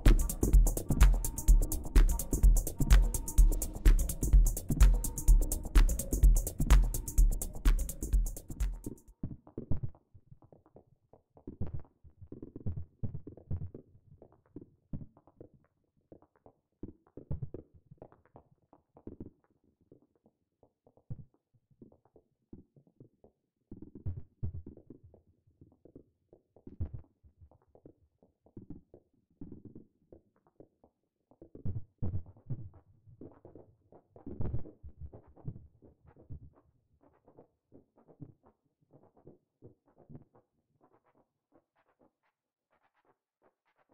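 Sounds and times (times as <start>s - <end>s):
low knocking synthesizer hits: 0.0s - 9.0s.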